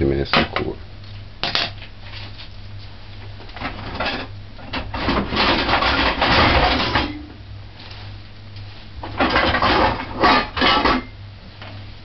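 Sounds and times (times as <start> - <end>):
steady low hum: 0.0 - 12.0
pots and utensils clinking: 9.2 - 11.1.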